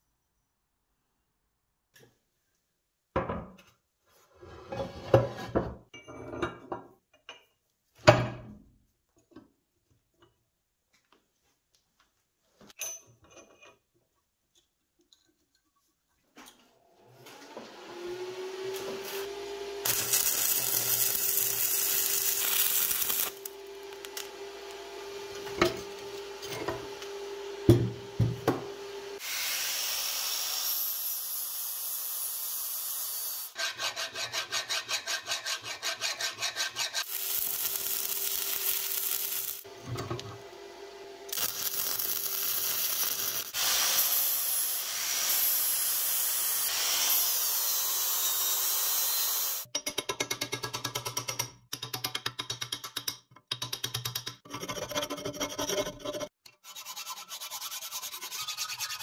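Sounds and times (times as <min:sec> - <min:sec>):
angle grinder grinding metal: 0:18.0 - 0:40.5, 0:41.3 - 0:49.7.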